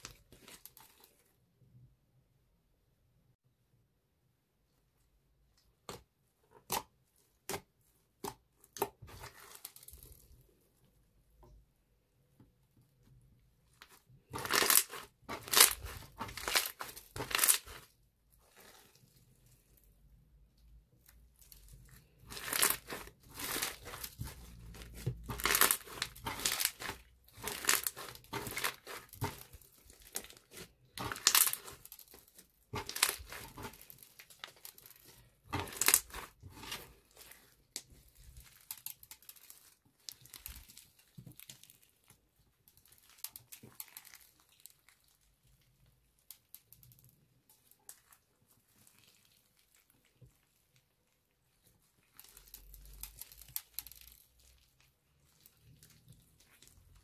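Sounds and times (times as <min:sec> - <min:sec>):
slime squishing and crackling: 0:00.0 - 0:01.3, 0:05.8 - 0:10.6, 0:13.2 - 0:57.0.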